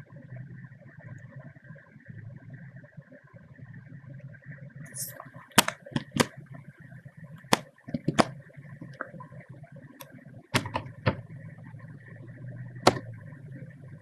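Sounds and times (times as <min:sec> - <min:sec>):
faint steady hum: 0:00.0 - 0:14.0
keyboard and mouse clicks: 0:04.9 - 0:06.4, 0:07.4 - 0:09.1, 0:10.0 - 0:11.2, 0:12.8 - 0:13.2.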